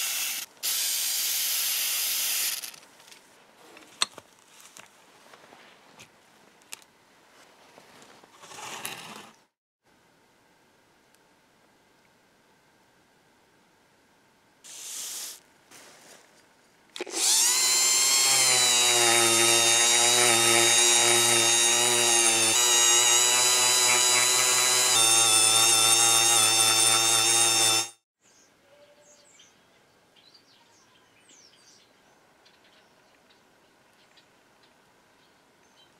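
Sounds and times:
rotary tool high whine: 0.0s - 2.8s, 17.0s - 28.0s.

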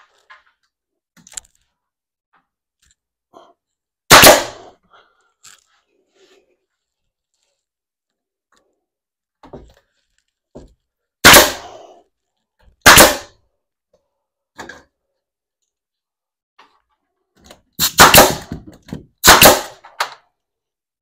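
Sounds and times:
loud sharp bangs: 4.1s - 4.7s, 11.2s - 11.8s, 12.8s - 13.3s, 17.8s - 18.6s, 19.2s - 19.8s.

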